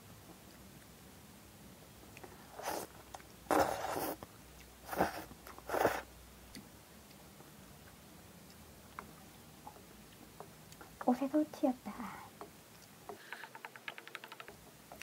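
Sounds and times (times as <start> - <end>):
person slurping noodles: 2.5 - 2.9, 3.5 - 4.2, 4.9 - 6.1.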